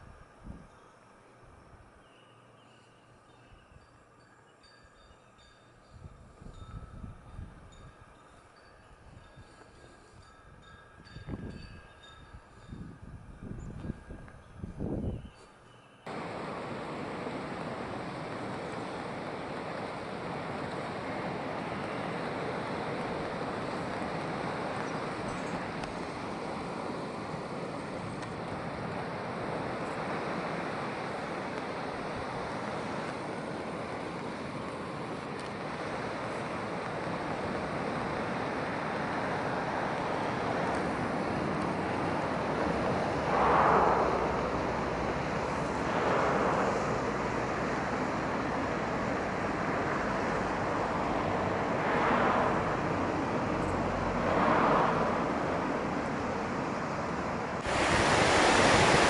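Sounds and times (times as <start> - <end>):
surf washing over rocks: 16.1 - 59.0
waves breaking: 16.1 - 59.0.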